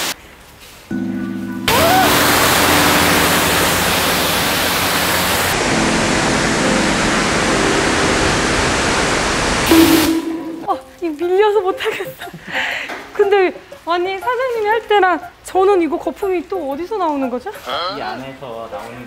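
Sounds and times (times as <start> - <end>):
pressure washer spraying: 1.7 - 5.6
low hum: 9.6 - 11.0.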